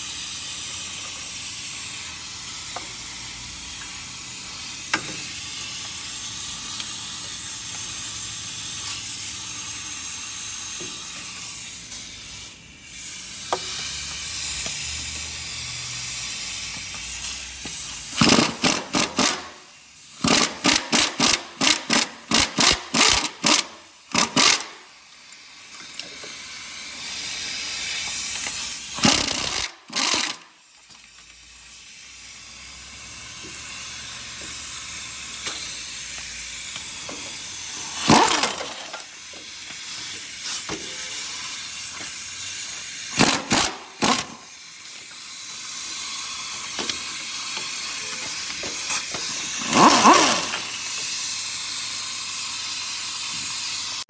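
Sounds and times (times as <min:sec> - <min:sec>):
hiss of exhaust air: 0:00.0 - 0:18.2, 0:30.5 - 0:43.2, 0:43.8 - 0:54.0
pneumatic ratchet running: 0:00.0 - 0:54.0.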